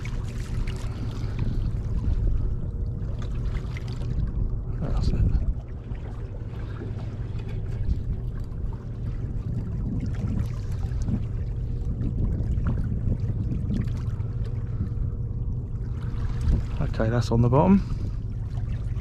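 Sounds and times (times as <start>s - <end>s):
faint steady hum: 0.0s - 19.0s
steady low rumble: 0.0s - 19.0s
water lapping against boat hull: 0.0s - 19.0s.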